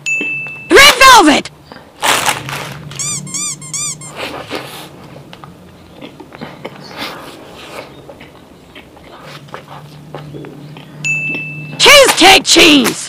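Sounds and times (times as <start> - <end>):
twinkling chime: 0.0 - 0.8, 11.0 - 11.8
mouth clicks: 1.7 - 11.5
chewing soft cake: 4.0 - 11.4.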